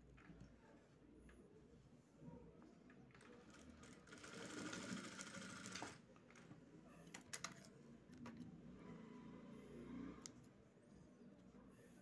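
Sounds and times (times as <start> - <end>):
sewing machine stitching: 3.8 - 6.0.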